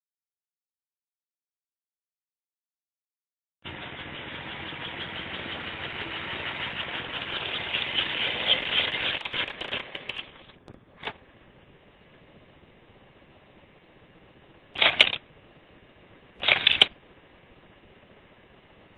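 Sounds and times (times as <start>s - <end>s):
faint hum: 3.6s - 18.9s
toy train rattling whir: 3.7s - 10.6s, 14.8s - 15.2s, 16.4s - 16.9s.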